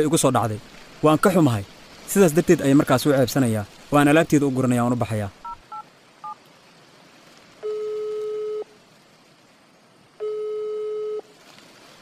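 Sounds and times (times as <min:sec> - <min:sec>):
telephone ringing tone: 0:07.6 - 0:08.7, 0:10.2 - 0:11.2.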